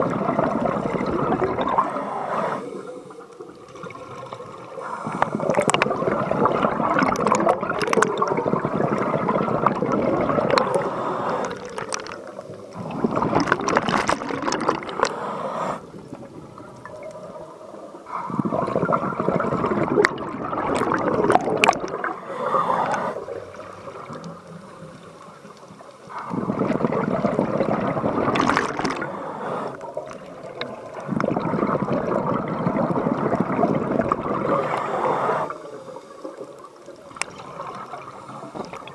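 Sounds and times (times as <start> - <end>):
underwater air bubbling: 0.0 - 38.9.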